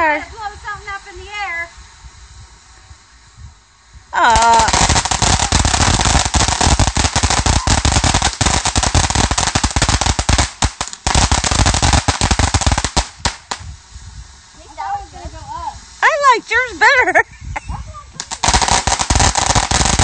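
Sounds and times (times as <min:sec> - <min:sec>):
firework crackling: 0:00.0 - 0:20.0
person's voice: 0:04.2 - 0:04.8, 0:14.6 - 0:18.4.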